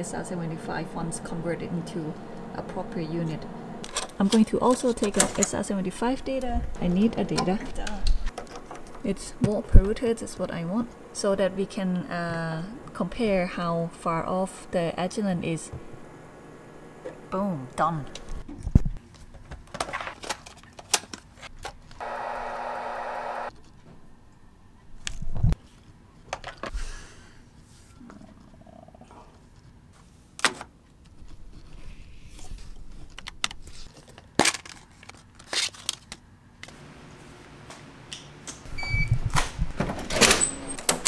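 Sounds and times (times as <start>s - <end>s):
steady buzz: 0.0s - 3.9s, 22.0s - 23.5s
clicks and knocks of objects handled: 18.4s - 22.0s.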